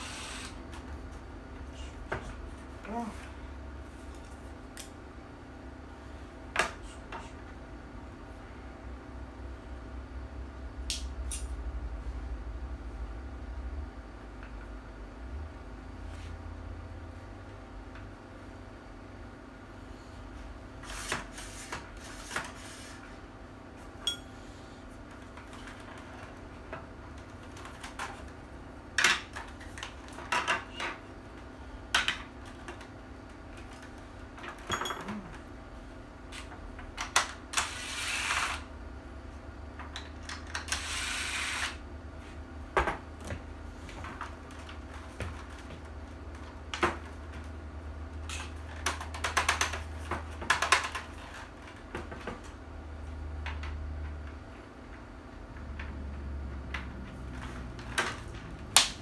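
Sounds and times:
cordless drill driving screws: 0:37.6 - 0:38.6, 0:40.7 - 0:41.8.

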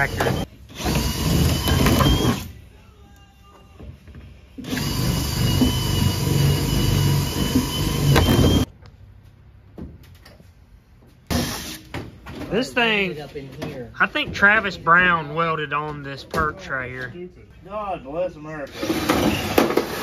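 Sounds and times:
power drill motor whine: 0:04.6 - 0:08.7.

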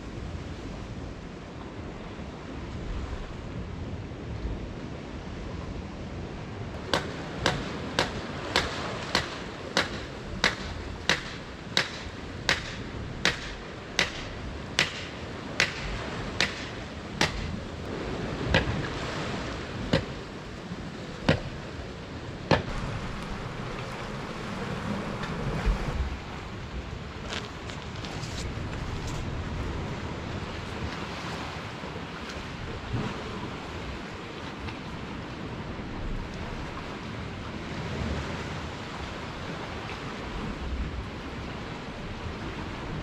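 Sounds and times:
steady rushing noise: 0:05.7 - 0:30.8
sharp knocks: 0:06.9 - 0:17.6, 0:19.9 - 0:20.2, 0:21.3 - 0:21.5, 0:22.5 - 0:22.7.

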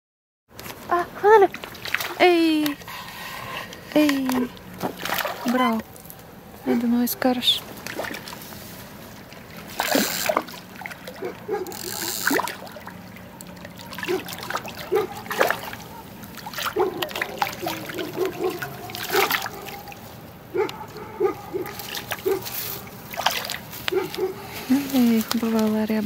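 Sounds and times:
trickling water: 0:00.6 - 0:26.0
fish splashing at surface: 0:04.1 - 0:06.2, 0:07.7 - 0:25.8.

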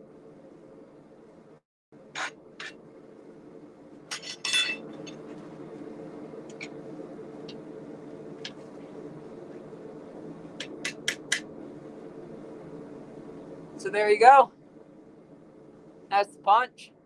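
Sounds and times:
steady low hum: 0:00.0 - 0:17.0
metal tools clattering: 0:04.1 - 0:04.9.

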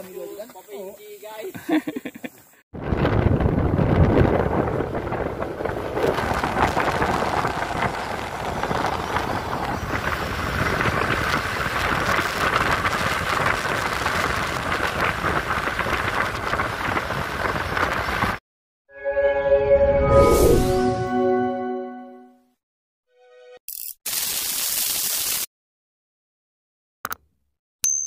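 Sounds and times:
motorcycle engine and road noise: 0:02.8 - 0:18.4
wind buffeting microphone: 0:02.8 - 0:18.4.

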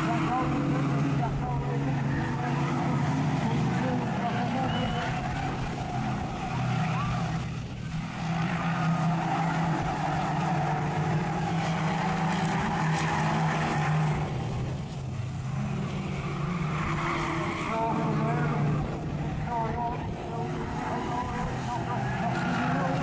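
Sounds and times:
race car engines running hard: 0:00.0 - 0:23.0
tyre squeal: 0:04.2 - 0:07.4.

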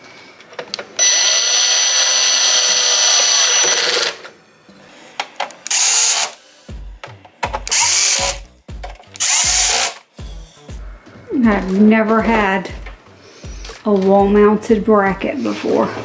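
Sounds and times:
cordless drill driving screws: 0:01.0 - 0:04.2, 0:05.7 - 0:06.4, 0:07.6 - 0:08.4, 0:09.2 - 0:10.1
low thumps: 0:10.2 - 0:15.4.

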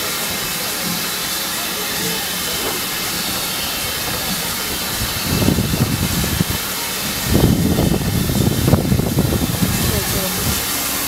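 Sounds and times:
steam hissing from locomotive: 0:00.0 - 0:11.0
low uneven rumble: 0:00.9 - 0:11.0.

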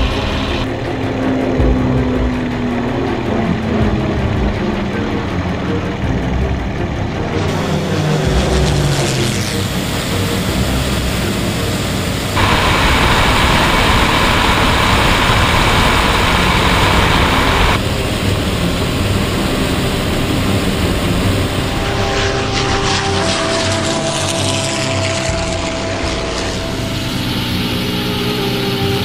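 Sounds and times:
piston aircraft engines droning: 0:00.0 - 0:29.0
wind rushing: 0:09.8 - 0:23.5.

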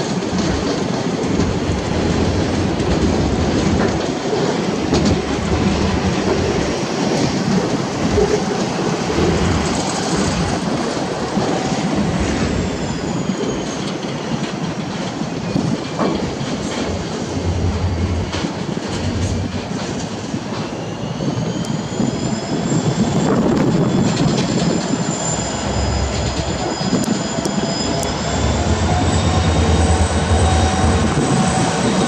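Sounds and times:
diesel locomotive engine: 0:00.0 - 0:32.0
wind buffeting microphone: 0:00.0 - 0:32.0
rising engine whine: 0:23.1 - 0:32.0.

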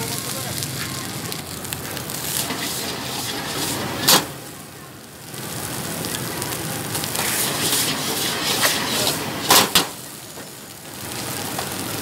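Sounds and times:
rice sizzling in a wok: 0:00.0 - 0:12.0.

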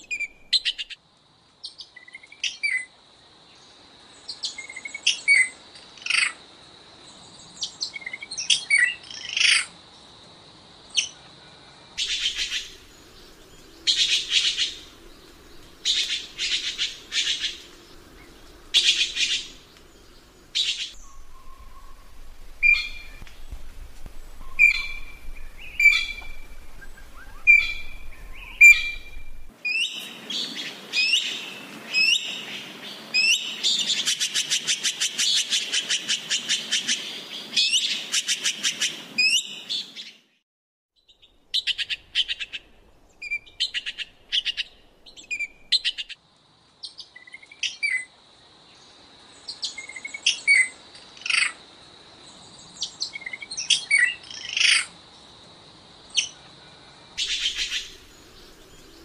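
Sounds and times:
magpies calling: 0:12.0 - 0:19.8, 0:20.5 - 0:23.3, 0:24.3 - 0:30.0, 0:57.2 - 0:59.0.

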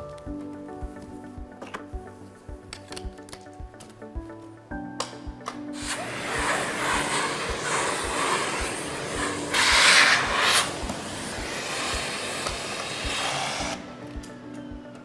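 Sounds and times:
background music with steady beat: 0:00.0 - 0:15.0
vacuum cleaner running: 0:05.8 - 0:13.8.

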